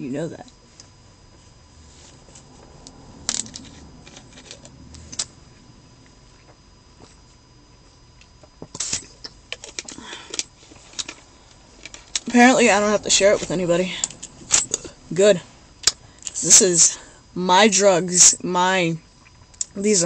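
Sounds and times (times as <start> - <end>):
handling clicks and rattles: 3.3 - 5.3, 9.5 - 12.6.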